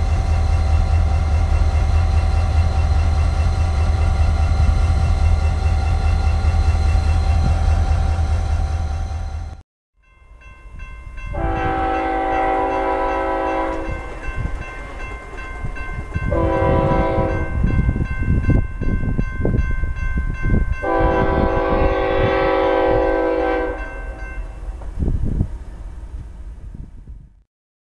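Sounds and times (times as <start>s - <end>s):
train rumbling and clanking: 0.0s - 9.6s, 10.4s - 27.3s
locomotive air horn blasts: 11.3s - 14.0s, 16.3s - 17.6s, 20.8s - 24.2s.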